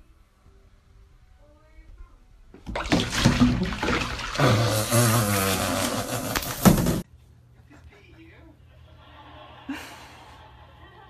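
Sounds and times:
water splashing in a tub: 2.6s - 6.8s.

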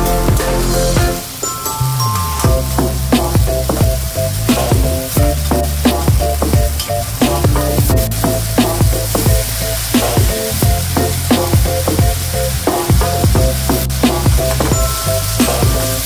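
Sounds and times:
onions sizzling in hot oil: 8.0s - 16.0s.

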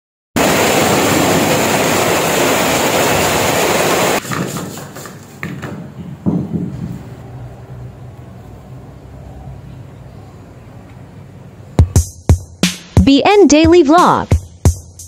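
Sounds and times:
heavy rain pouring: 0.4s - 4.2s.

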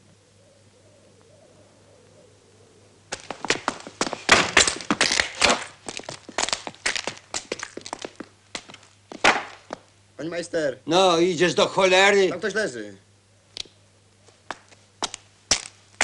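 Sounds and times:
footsteps crunching on gritty floor: 3.1s - 9.9s.

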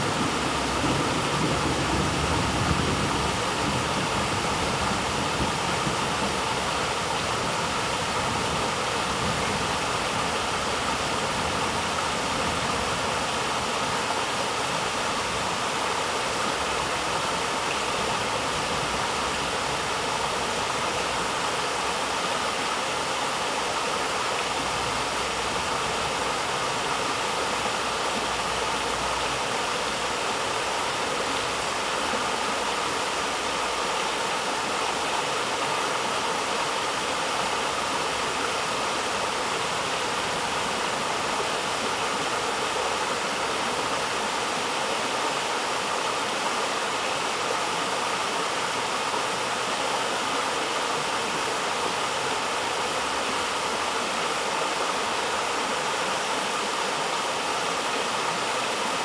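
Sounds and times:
stream rushing over rocks: 0.0s - 59.0s.

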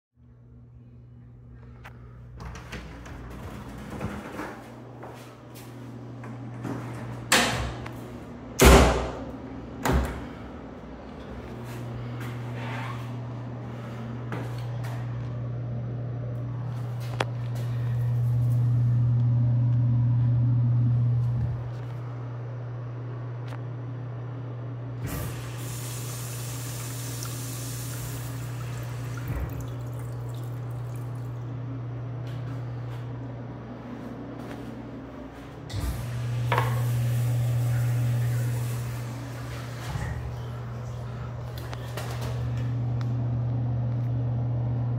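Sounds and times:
steady low hum: 0.2s - 44.9s
door thudding shut: 8.6s - 10.2s
rushing flush water: 25.0s - 31.6s, 35.8s - 42.4s
urinal flush thump: 26.7s - 31.0s, 35.7s - 41.2s.

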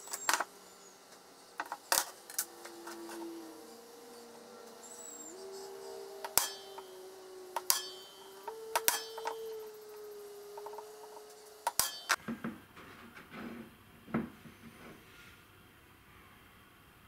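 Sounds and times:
faint steady hum: 0.0s - 17.0s
centre punch snapping into metal: 6.2s - 6.9s, 7.6s - 9.4s, 11.6s - 12.2s.

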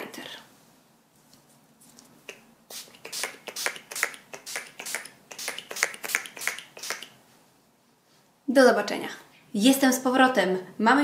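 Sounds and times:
spray bottle spritzing: 2.3s - 7.2s.

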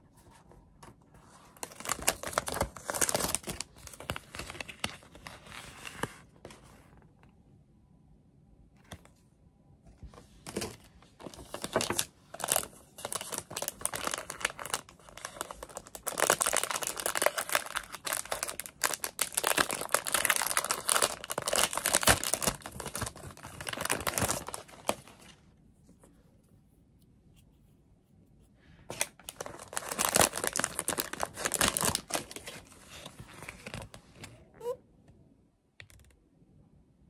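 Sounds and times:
plastic wrapper crinkling and tearing: 1.6s - 6.2s, 10.4s - 25.4s, 28.9s - 34.0s.

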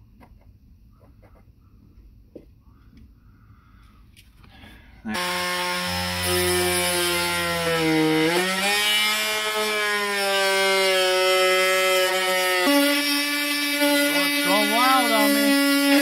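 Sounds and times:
oscillating tool whining: 5.1s - 16.0s.

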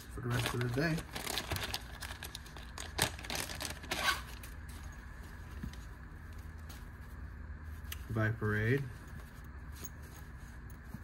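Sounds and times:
plastic bag crinkling: 0.1s - 4.7s.

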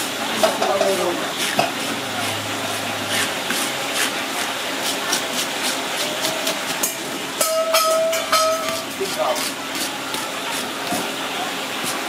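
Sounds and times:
fish scaler scraping: 0.8s - 7.1s, 7.8s - 11.2s.

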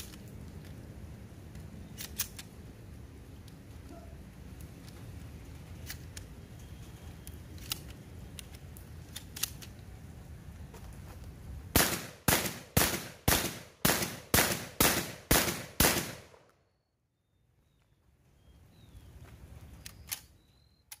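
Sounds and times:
rapid shotgun shots: 11.8s - 16.3s.

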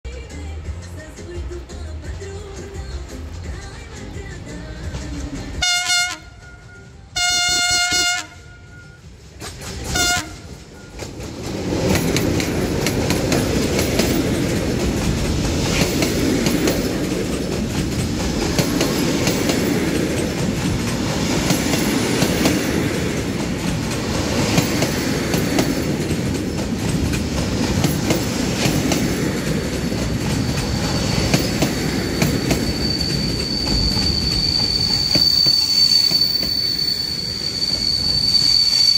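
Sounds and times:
freight train rumbling past: 0.2s - 38.9s
diesel locomotive horn blasts: 5.6s - 9.1s, 9.9s - 10.9s
wheels clattering over rail joints: 9.2s - 36.6s
high wheel squeal: 30.0s - 38.9s.

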